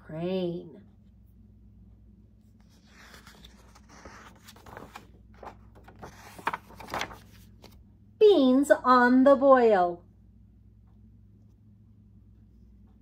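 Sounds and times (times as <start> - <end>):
faint steady hum: 0.0 - 13.0
book pages rustling: 2.6 - 7.8.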